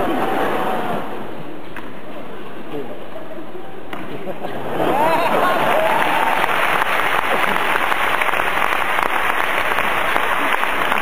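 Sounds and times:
crowd applauding: 4.8s - 11.0s.

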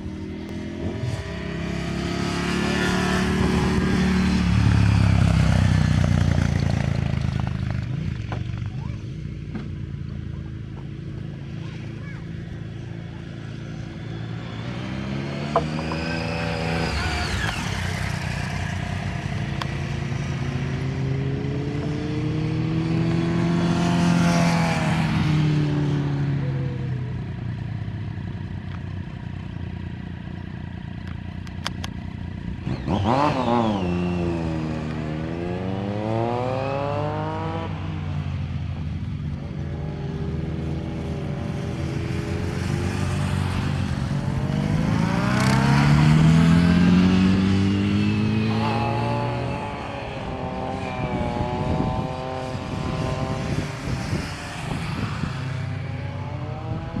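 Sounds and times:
motorcycle engine revving past: 13.6s - 26.9s, 32.6s - 38.5s, 39.9s - 57.0s.

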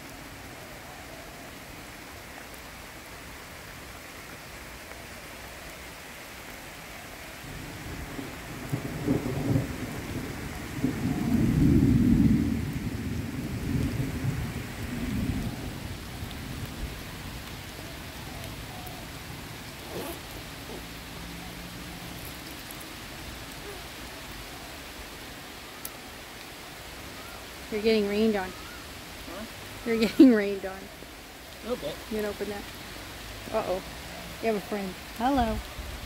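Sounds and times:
steady rain hiss: 0.0s - 36.0s
low rumble of thunder: 7.4s - 19.8s.

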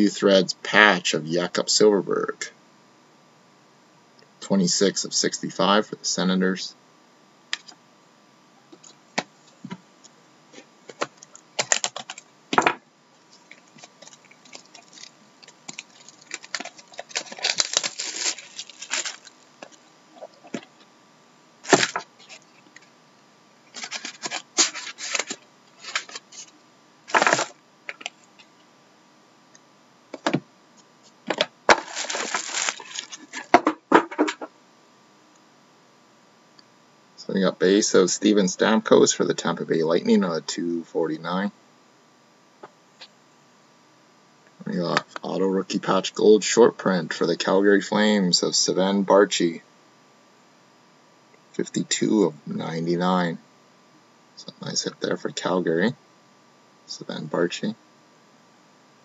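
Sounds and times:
rustling and scraping of cards: 10.5s - 12.2s, 13.2s - 20.9s, 21.6s - 22.9s, 23.7s - 28.6s, 30.2s - 34.4s.

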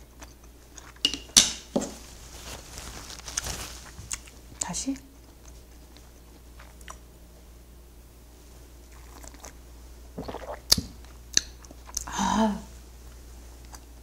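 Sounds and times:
person sipping and swallowing: 10.2s - 10.9s.

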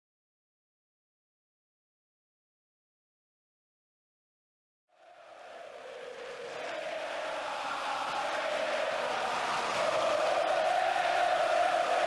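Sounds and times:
voices holding long note: 4.9s - 12.0s.

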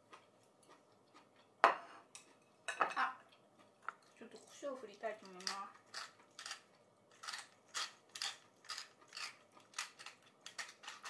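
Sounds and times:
spice mill grinding: 5.4s - 11.0s.

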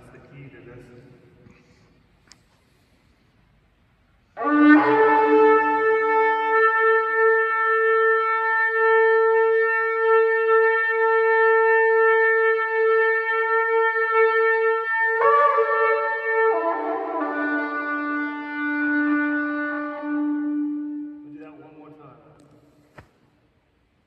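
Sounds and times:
shofar horn blowing a long note: 4.3s - 22.7s.

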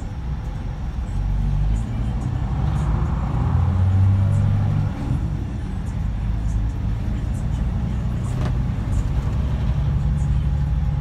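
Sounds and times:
diesel coach engine: 0.0s - 11.0s
road noise: 0.0s - 11.0s.

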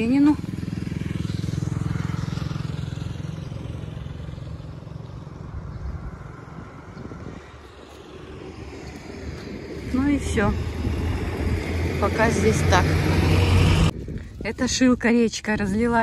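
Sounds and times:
vehicle engine passing by: 0.0s - 14.0s.

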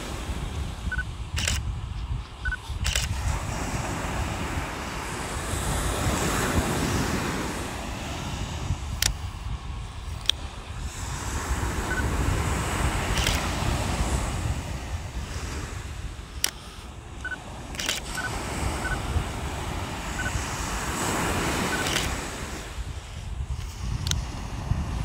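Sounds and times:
surf breaking on beach: 0.0s - 1.4s, 2.6s - 25.0s
wind rumbling on microphone: 0.0s - 25.0s
sharp clicks: 0.9s - 3.2s, 8.9s - 9.3s, 13.1s - 13.6s, 16.4s - 18.3s, 21.7s - 22.2s.

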